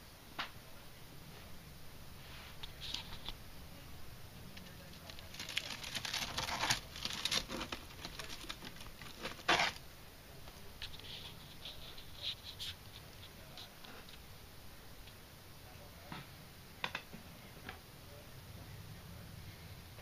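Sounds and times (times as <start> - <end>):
fern fronds rustling: 1.3 - 9.9.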